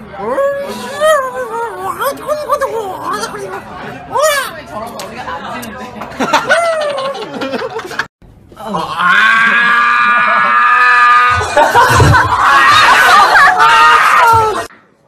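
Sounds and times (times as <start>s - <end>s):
young men screaming: 8.6s - 14.7s.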